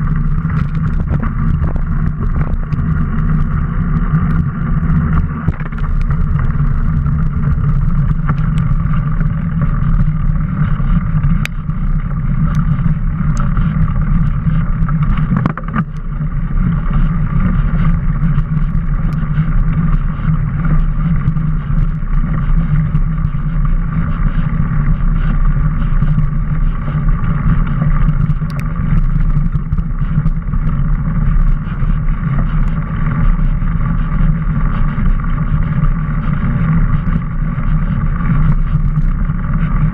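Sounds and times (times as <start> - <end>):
bike tyre and frame vibration: 0.0 - 39.9
small clicks and rattles: 0.0 - 39.9
wind over microphone: 0.0 - 39.9.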